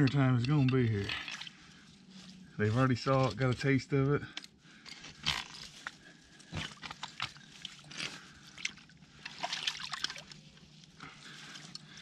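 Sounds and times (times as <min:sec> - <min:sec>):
creek water sloshing and trickling: 0:00.0 - 0:02.5, 0:05.3 - 0:12.0
small splashes and drips: 0:01.0 - 0:01.7, 0:06.6 - 0:12.0.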